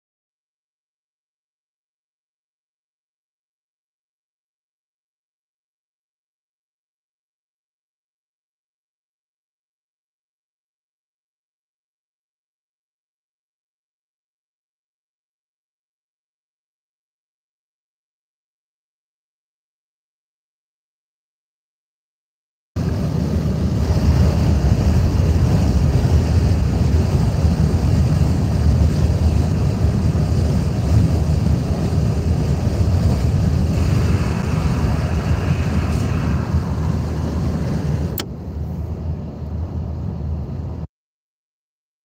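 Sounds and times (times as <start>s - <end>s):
car road noise rumble: 22.8s - 40.9s
sharp click: 38.1s - 38.4s.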